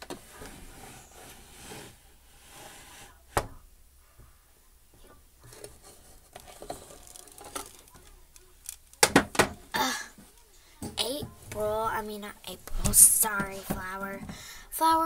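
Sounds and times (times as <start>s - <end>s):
soft rubbing of toy: 0.2s - 3.4s, 5.5s - 8.0s.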